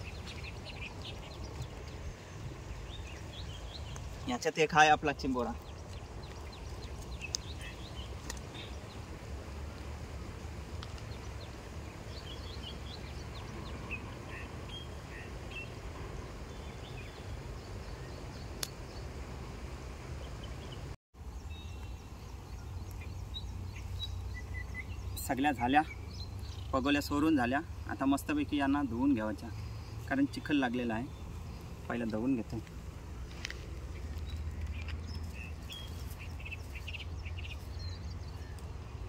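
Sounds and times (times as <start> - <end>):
bird chirps: 5.4 - 9.0, 20.2 - 32.6, 33.9 - 38.7.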